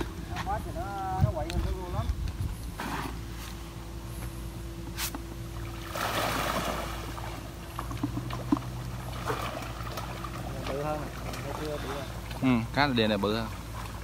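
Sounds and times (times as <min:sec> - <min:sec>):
fish splashing at water surface: 0:05.5 - 0:12.5.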